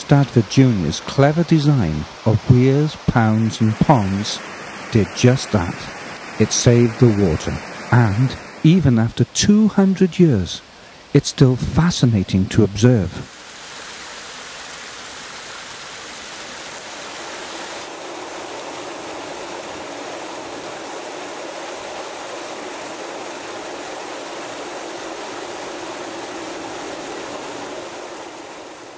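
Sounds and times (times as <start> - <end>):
water rushing down a weir: 0.0 - 10.7, 12.6 - 28.9.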